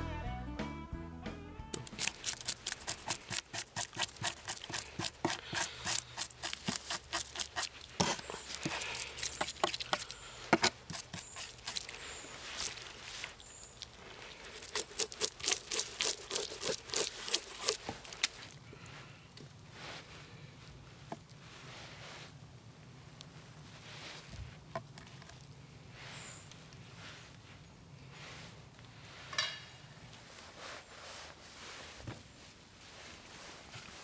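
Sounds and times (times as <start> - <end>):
knife scraping fish scales: 1.8 - 18.6.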